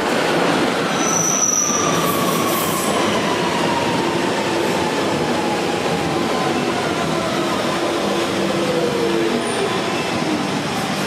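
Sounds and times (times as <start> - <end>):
high wheel squeal: 1.0 - 2.2.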